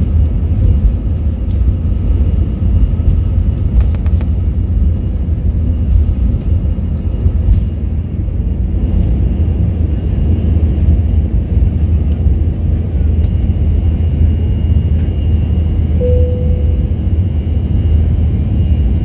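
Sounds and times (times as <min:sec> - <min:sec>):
jet engines rumbling at takeoff: 0:00.0 - 0:19.0
faint high whine: 0:14.3 - 0:18.9.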